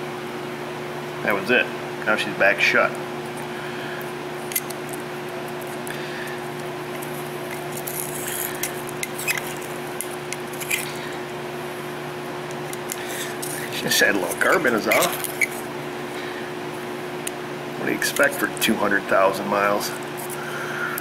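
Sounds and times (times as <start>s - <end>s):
steady hum: 0.0s - 21.0s
screwdriver scraping carbon: 4.4s - 11.0s, 12.5s - 15.7s.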